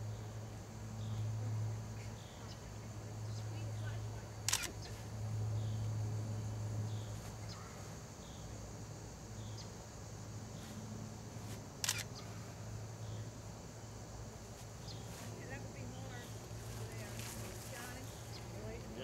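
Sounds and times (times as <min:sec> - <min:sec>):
sharp click: 0:04.5 - 0:04.8, 0:11.8 - 0:12.1.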